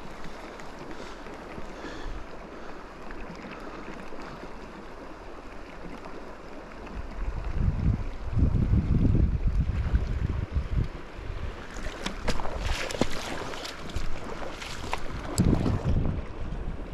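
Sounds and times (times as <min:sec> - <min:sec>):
river water rushing: 0:00.0 - 0:07.5, 0:11.0 - 0:16.4
wind buffeting microphone: 0:07.0 - 0:16.9.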